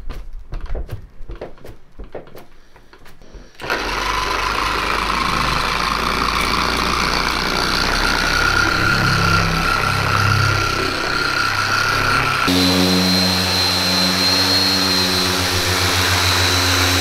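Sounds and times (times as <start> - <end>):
electric polisher whining hum: 3.6 - 17.0.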